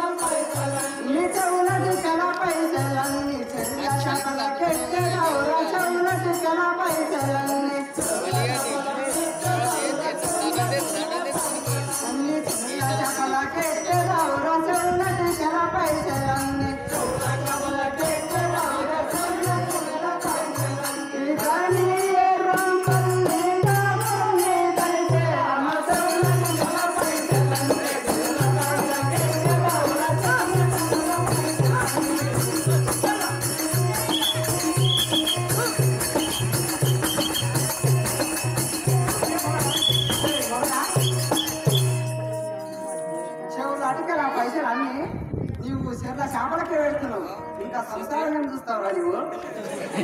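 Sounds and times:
drum beating steady rhythm: 0.0 - 15.4, 16.9 - 43.0
jingling cymbals or bells: 0.0 - 44.1
wavering melody line: 31.6 - 45.0.

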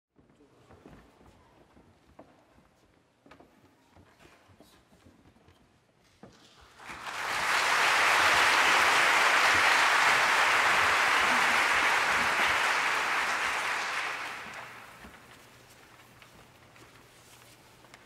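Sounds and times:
audience applauding: 6.7 - 15.4.

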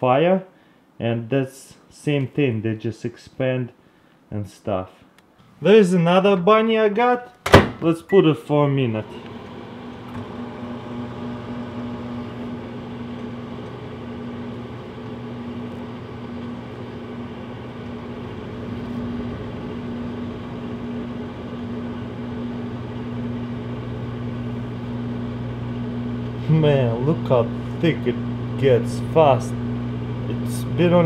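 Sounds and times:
microwave oven humming: 9.0 - 31.0.

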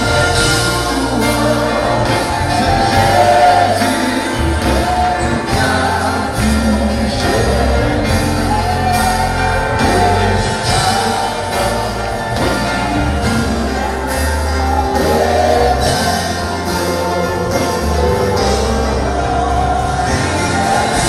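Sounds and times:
band accompaniment: 0.0 - 21.0
choir singing gospel song: 0.0 - 21.0.

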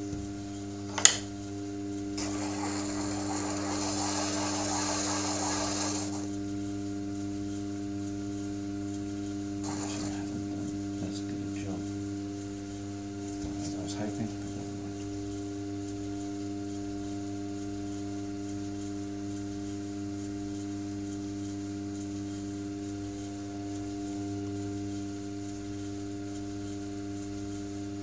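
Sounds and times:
potter's wheel motor humming: 2.0 - 6.4, 9.2 - 16.3.

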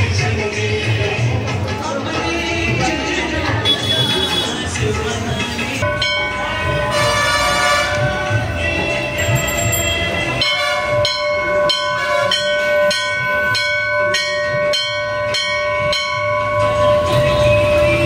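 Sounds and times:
metal temple bell ringing: 5.8 - 18.0.

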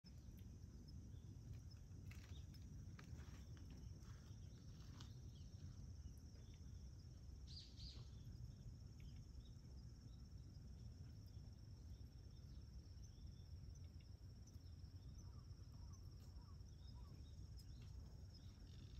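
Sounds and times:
high-pitched insect chirring: 7.4 - 18.9.

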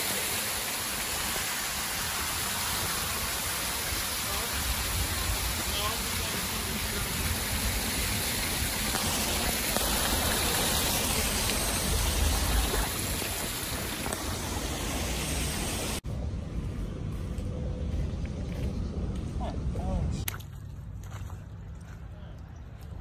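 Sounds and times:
dull hiss: 0.0 - 16.0
waterfall spattering on rock: 7.6 - 14.4.

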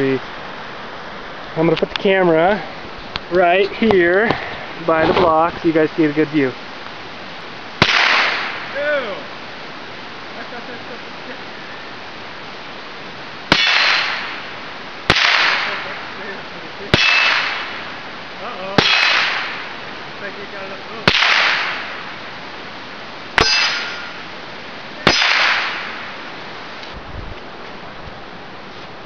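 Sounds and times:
rifle shots with echo: 7.8 - 8.8, 13.5 - 14.5, 15.1 - 16.2, 16.9 - 18.0, 18.8 - 19.8, 21.0 - 22.1, 23.4 - 24.2, 25.0 - 26.2.

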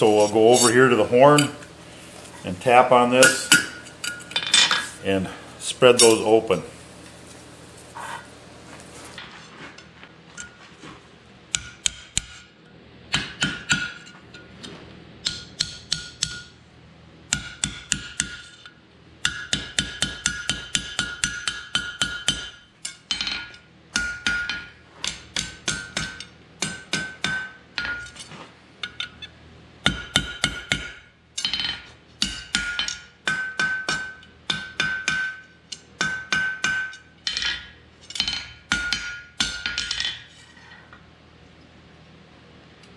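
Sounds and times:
hammer striking steel on anvil: 0.0 - 1.7, 3.2 - 4.8, 11.5 - 12.5, 13.1 - 14.5, 15.2 - 16.6, 17.3 - 28.2, 29.8 - 40.2
anvil ringing: 3.2 - 4.8.

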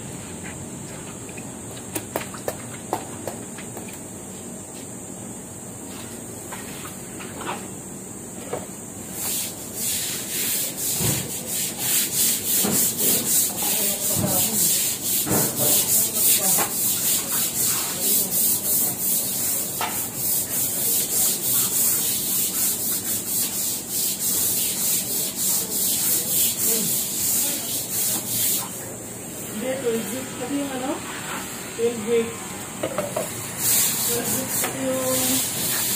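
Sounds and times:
broom scrubbing wet tiles: 9.1 - 31.5, 33.2 - 35.9.

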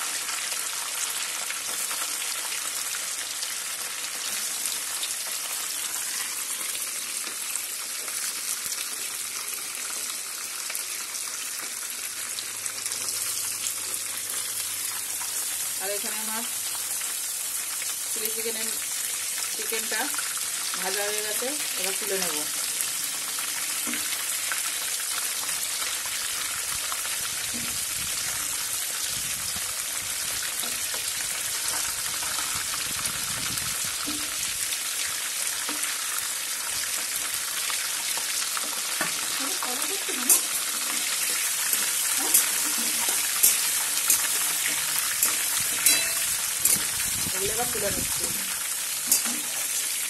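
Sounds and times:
chicken sizzling in oil: 0.0 - 50.0
metal spoon stirring in pan: 40.0 - 47.1, 48.4 - 50.0.

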